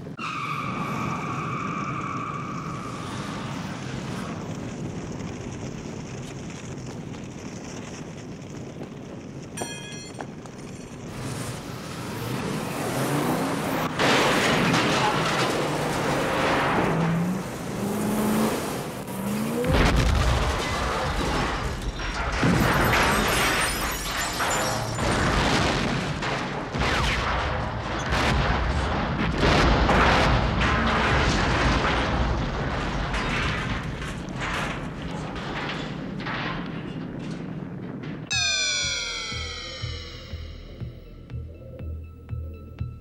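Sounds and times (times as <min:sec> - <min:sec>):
roar of flames: 0:02.5 - 0:09.6.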